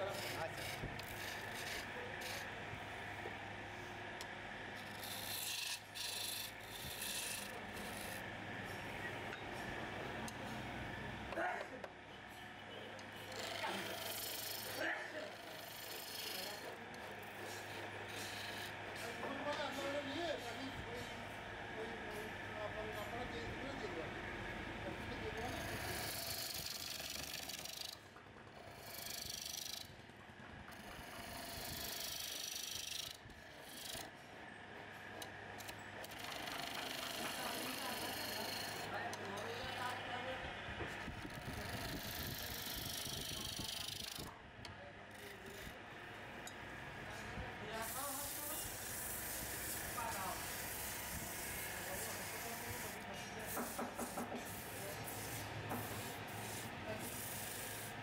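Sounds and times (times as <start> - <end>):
tool rasping on spinning wood: 0.0 - 3.0, 4.7 - 8.7, 13.2 - 20.6, 25.2 - 30.0, 30.7 - 34.1, 35.6 - 40.1, 40.9 - 44.3, 45.1 - 45.8, 47.7 - 58.0
chisel cutting wood on a lathe: 0.0 - 9.3, 13.0 - 21.2, 24.5 - 30.0, 30.7 - 34.1, 35.0 - 40.2, 40.9 - 44.3, 45.1 - 58.0.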